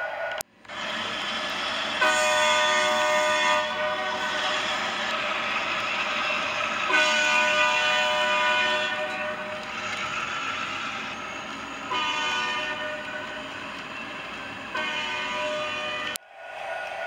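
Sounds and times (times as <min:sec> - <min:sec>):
freight train rumbling on track: 0:00.0 - 0:17.0
locomotive electronic horn: 0:02.0 - 0:11.1, 0:11.8 - 0:16.2.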